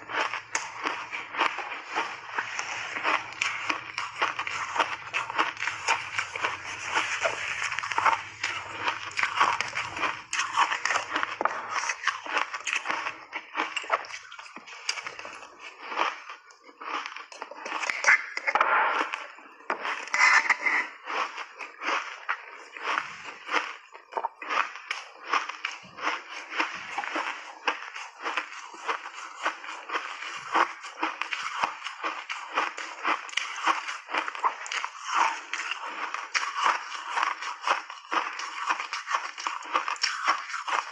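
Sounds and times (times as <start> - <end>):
ice being chewed crunching: 0.0 - 40.9
shaved ice crunching: 0.1 - 13.0.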